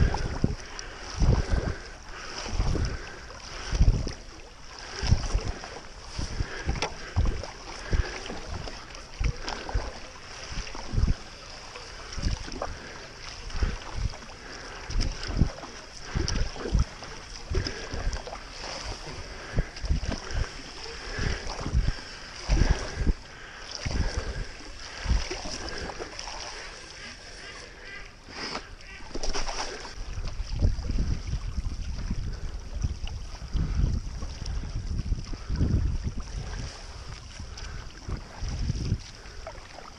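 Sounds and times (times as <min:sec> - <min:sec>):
paddle strokes in water: 0:00.0 - 0:39.9.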